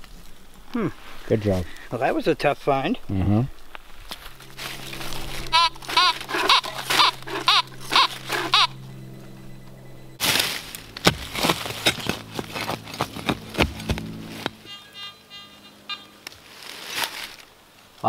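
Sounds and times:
metal detector beeping: 0:04.4 - 0:10.2, 0:14.6 - 0:16.3
shovel chopping into soil: 0:10.2 - 0:14.6.

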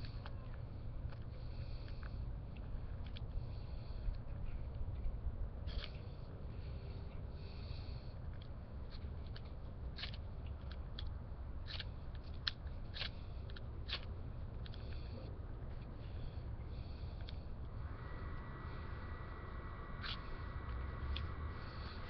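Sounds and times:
wind rumble on microphone: 0:15.2 - 0:22.0.

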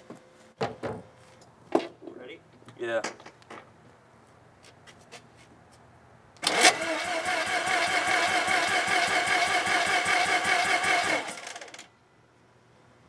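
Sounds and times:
starter cranking rotary engine: 0:06.4 - 0:11.9.

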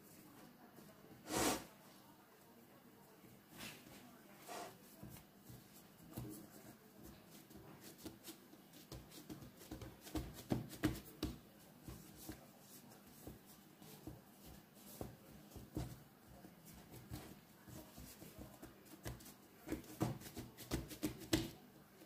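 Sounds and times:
hands patting dough: 0:04.7 - 0:22.0.

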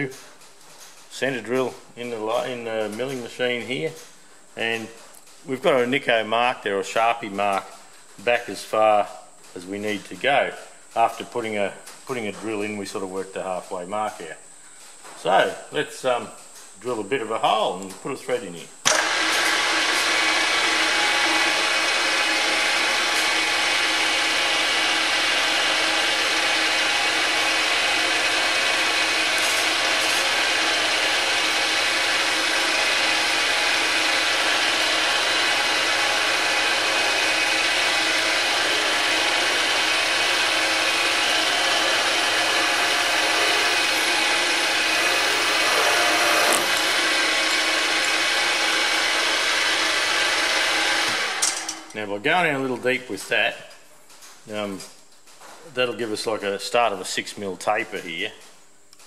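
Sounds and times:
drill cutting metal: 0:18.8 - 0:51.9
milling machine spindle whirring: 0:18.8 - 0:52.0.

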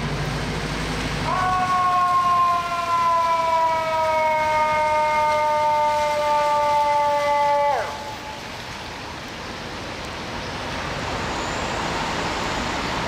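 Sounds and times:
street traffic noise: 0:00.0 - 0:13.0
fire truck air horn blast: 0:02.8 - 0:08.6.

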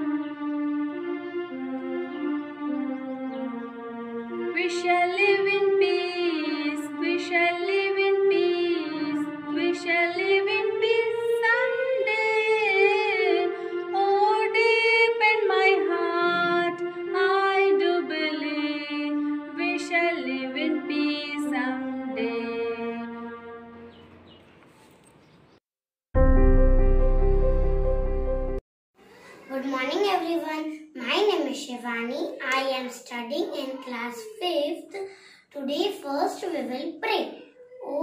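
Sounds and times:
woman singing slow melody: 0:04.6 - 0:23.5.

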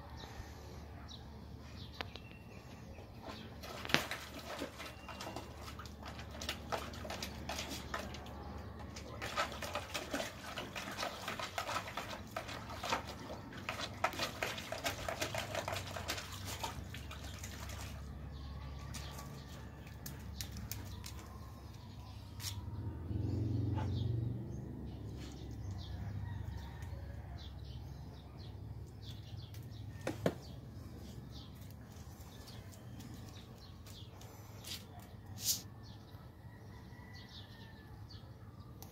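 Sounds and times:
dog splashing in water: 0:03.6 - 0:21.4.

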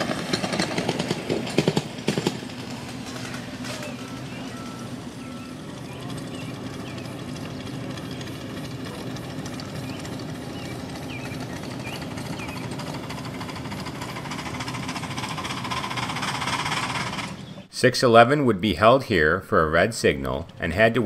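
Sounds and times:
running gear on track: 0:00.0 - 0:17.7
steam locomotive chugging past: 0:00.0 - 0:17.7.

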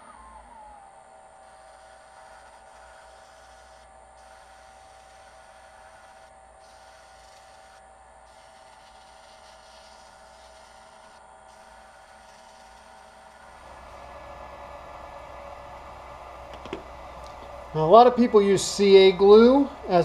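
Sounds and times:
wood lathe whining: 0:00.0 - 0:20.0
sandpaper hiss on wood: 0:01.8 - 0:13.5.

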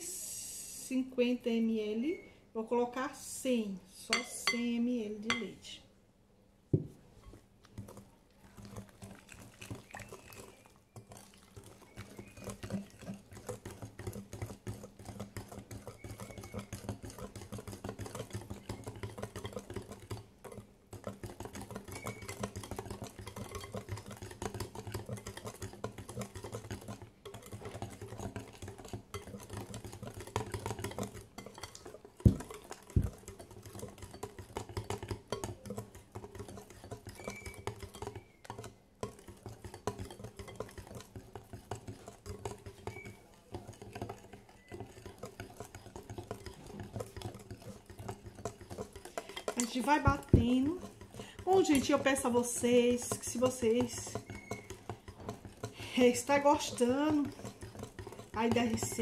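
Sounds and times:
whisk clicking against glass bowl: 0:04.1 - 0:05.5, 0:07.2 - 0:59.0
louder knocks of whisk: 0:06.7 - 0:07.0, 0:32.2 - 0:33.1.

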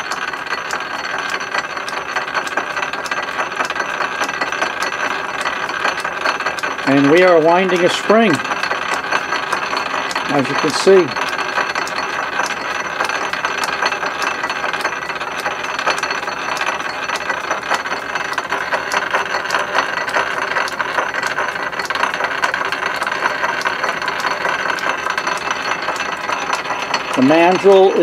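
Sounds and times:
lathe gear whine: 0:00.0 - 0:28.0
rapid even ticking: 0:00.0 - 0:28.0.

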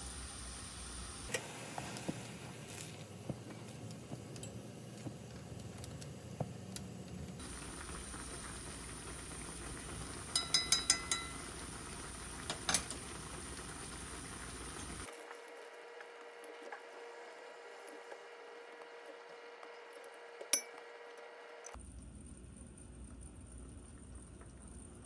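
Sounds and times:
broth simmering in a pan: 0:00.0 - 0:25.0.

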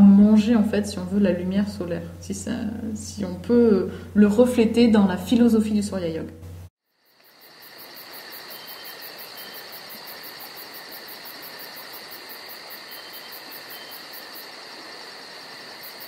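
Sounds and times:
insects buzzing: 0:06.8 - 0:16.0.

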